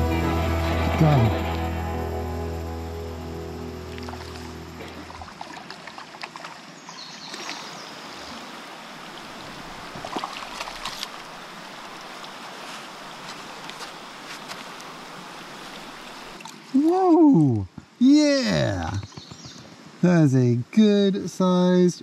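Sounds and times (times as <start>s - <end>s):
background music: 0.0s - 5.1s
creek water rushing over riffle: 3.7s - 19.0s.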